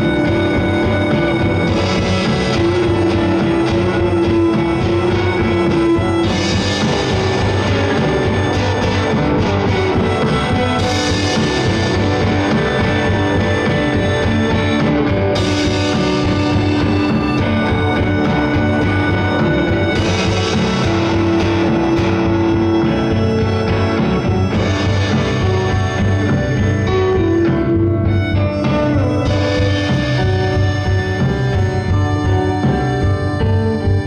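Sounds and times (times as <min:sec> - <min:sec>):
drum kit: 0:00.0 - 0:34.0
electric guitar: 0:00.0 - 0:34.0.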